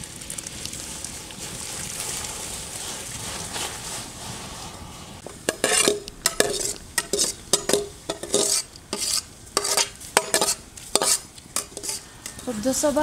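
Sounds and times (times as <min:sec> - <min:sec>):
rice scraping metal cookware: 0:05.3 - 0:12.0.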